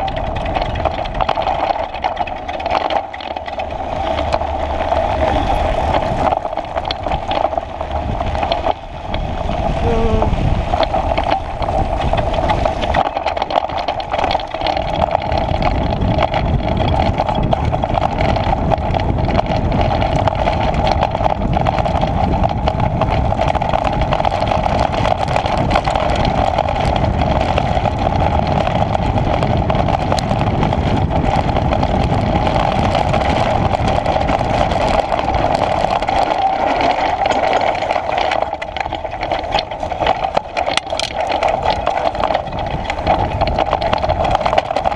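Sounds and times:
bike tyres rattling over gravel: 0:00.0 - 0:44.9
wind on microphone: 0:00.0 - 0:44.9
steady hum: 0:03.3 - 0:13.4.

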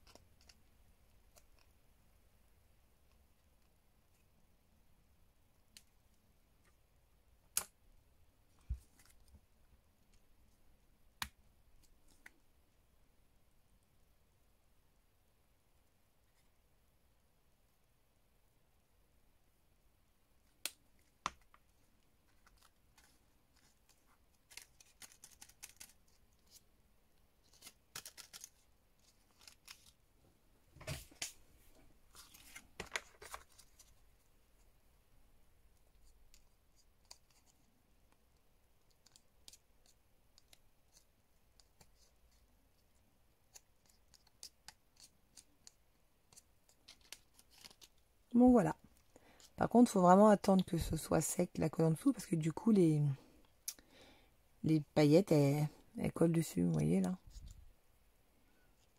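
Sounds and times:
paper clicks: 0:22.3 - 0:26.6, 0:27.5 - 0:30.0, 0:43.5 - 0:48.0.

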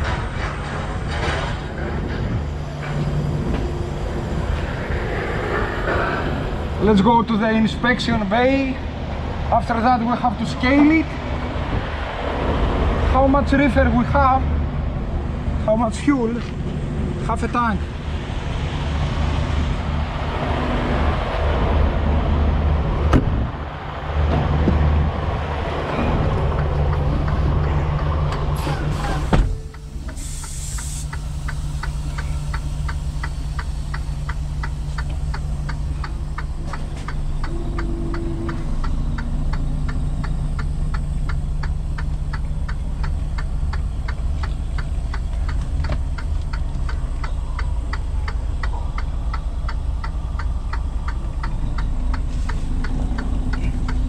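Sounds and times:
diesel truck engine running: 0:00.0 - 0:54.0
air hiss: 0:28.6 - 0:34.3.

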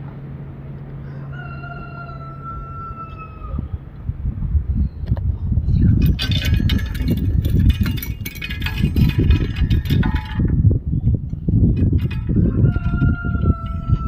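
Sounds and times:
wind buffeting microphone: 0:02.0 - 0:14.0
metal garden rakes clinking: 0:05.9 - 0:10.6, 0:11.7 - 0:14.0.

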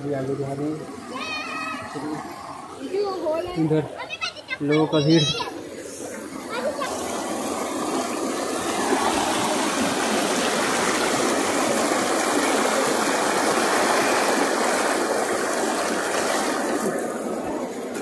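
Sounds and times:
waterfall stream rushing: 0:06.7 - 0:17.8.

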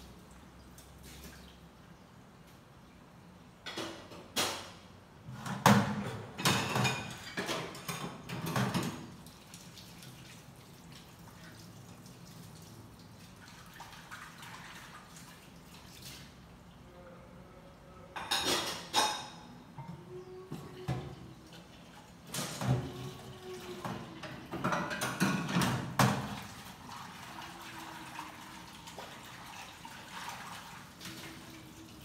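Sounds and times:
dishes and pans clattering: 0:03.6 - 0:09.2, 0:18.1 - 0:21.4, 0:22.3 - 0:26.5.

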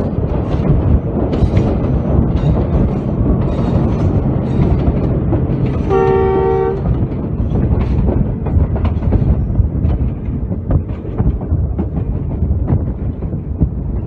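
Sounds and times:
train rumble and rail clatter: 0:00.0 - 0:14.0
locomotive horn: 0:05.8 - 0:06.9.

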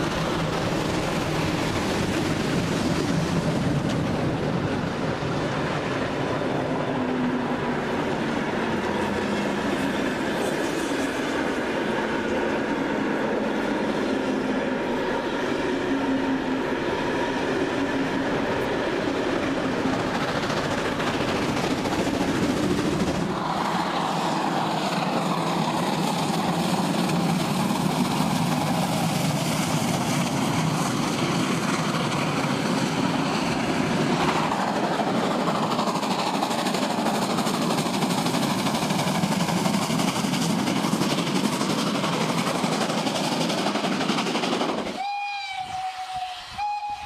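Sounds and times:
train wheels rumbling on rails: 0:00.0 - 0:47.0
steam whistle: 0:45.0 - 0:47.0.

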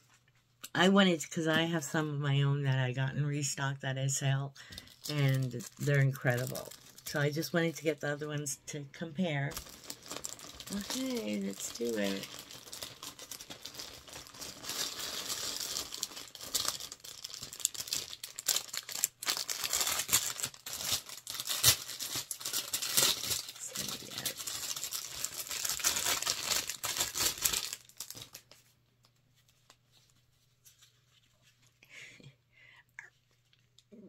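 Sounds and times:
packaging crackling and tearing: 0:04.7 - 0:07.4, 0:09.5 - 0:28.6.

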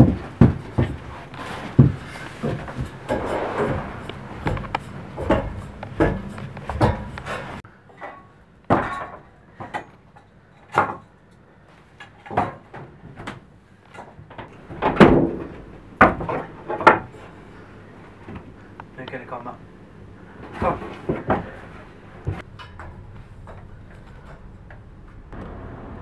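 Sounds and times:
knocks and thumps on wood: 0:00.0 - 0:01.1.

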